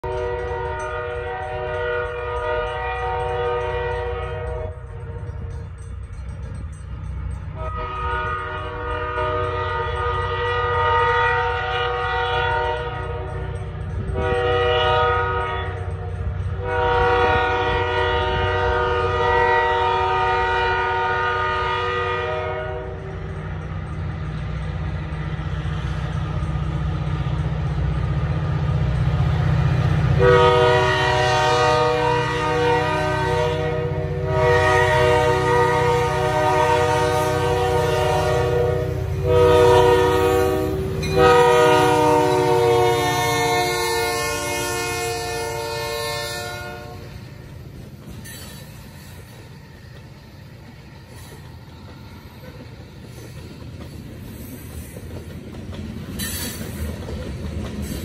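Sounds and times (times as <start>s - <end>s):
locomotive air horn: 0.0s - 4.9s, 7.6s - 13.5s, 14.1s - 15.9s, 16.6s - 23.2s, 30.1s - 47.3s
locomotive engine rumble: 0.0s - 58.0s.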